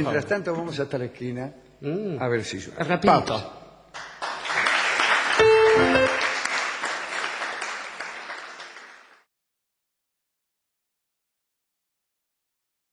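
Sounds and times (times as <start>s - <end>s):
audience applauding: 4.0s - 9.3s
brief burst of music: 5.4s - 6.4s.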